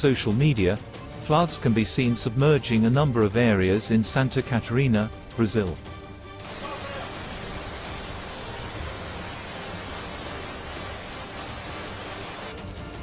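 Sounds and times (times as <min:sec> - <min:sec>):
floodwater rushing: 0:06.4 - 0:12.5.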